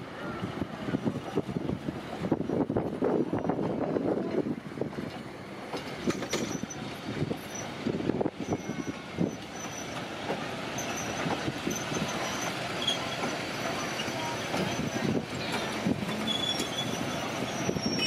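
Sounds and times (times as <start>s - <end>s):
high wheel squeal: 6.1s - 7.8s, 8.4s - 10.0s, 10.7s - 18.0s.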